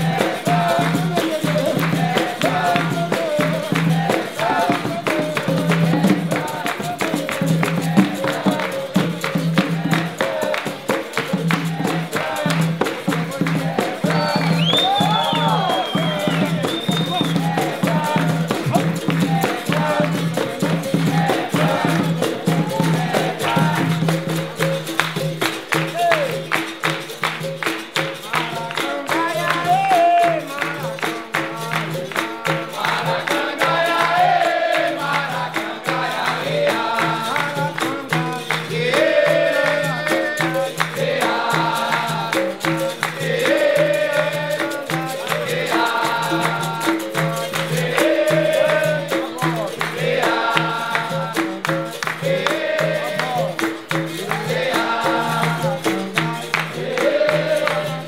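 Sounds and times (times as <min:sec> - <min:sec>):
group chorus call-and-response singing: 0:00.0 - 0:58.0
hand drum percussion: 0:00.0 - 0:58.0.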